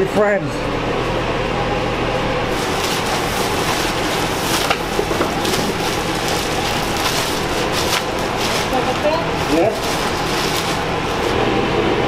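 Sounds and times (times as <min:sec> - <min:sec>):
air-moving fan running: 0:00.0 - 0:12.0
plastic trash bag crinkling: 0:02.5 - 0:11.4.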